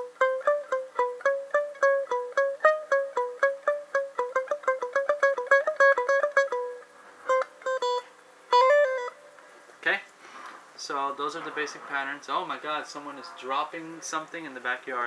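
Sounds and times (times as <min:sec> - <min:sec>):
electric guitar picking single notes: 0:00.0 - 0:09.6.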